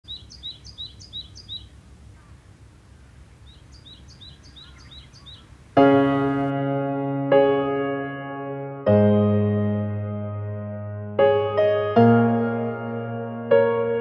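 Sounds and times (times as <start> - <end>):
bird chirping: 0.0 - 6.5
electric piano chord: 5.8 - 14.0.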